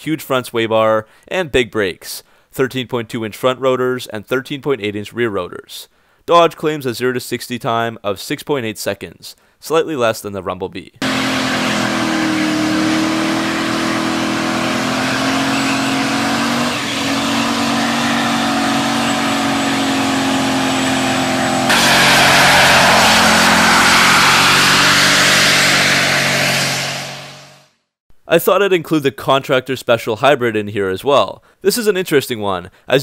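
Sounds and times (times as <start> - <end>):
tyres spinning hiss: 11.0 - 26.9
engine revving high: 11.0 - 27.7.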